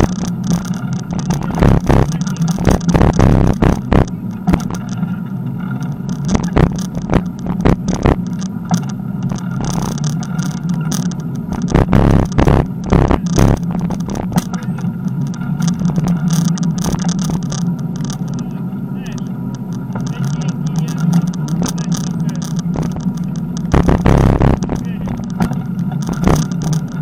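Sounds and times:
bicycle tyre noise: 0.0 - 27.0
bike rattling and knocking: 0.0 - 27.0.

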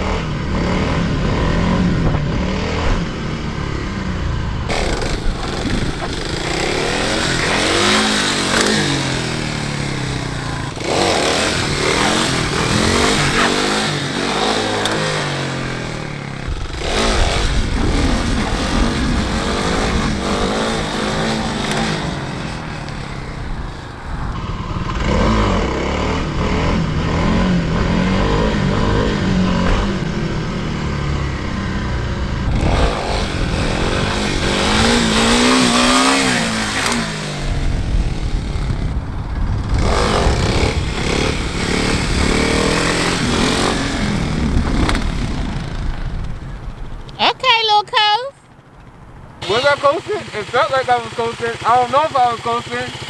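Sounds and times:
dirt bike engine revving: 0.0 - 46.9, 49.4 - 53.0.

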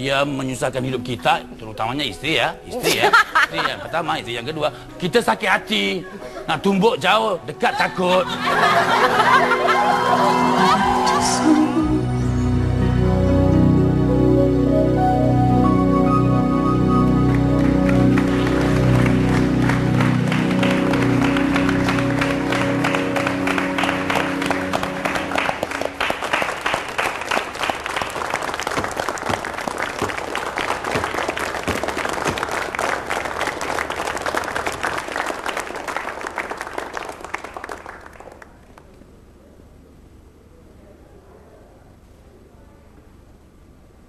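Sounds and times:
closing music: 6.6 - 27.7
audience applause: 8.4 - 12.3, 17.0 - 38.9.

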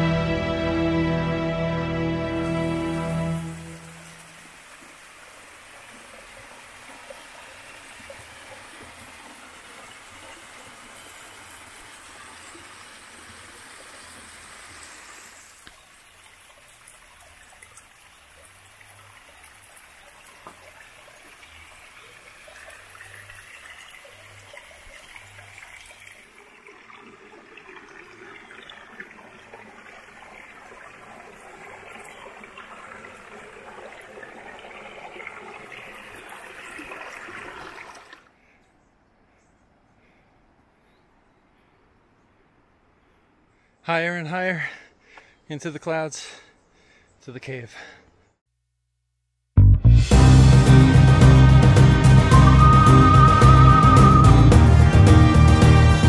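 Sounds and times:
stream trickling over rocks: 2.4 - 38.4.

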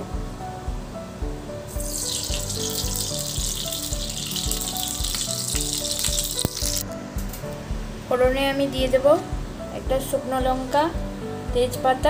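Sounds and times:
background music with beat: 0.0 - 12.0
oil sizzling in pan: 1.7 - 6.9.

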